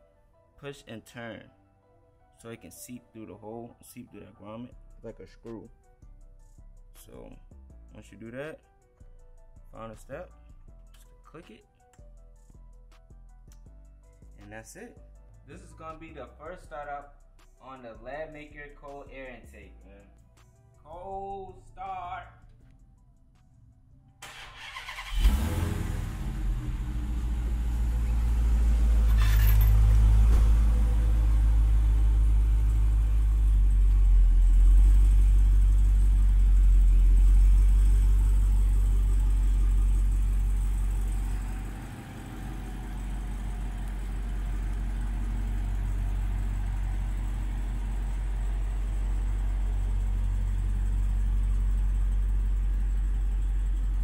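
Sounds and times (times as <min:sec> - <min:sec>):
car engine starting: 0:24.2 - 0:54.0
car engine idling with deep rumble: 0:25.2 - 0:54.0.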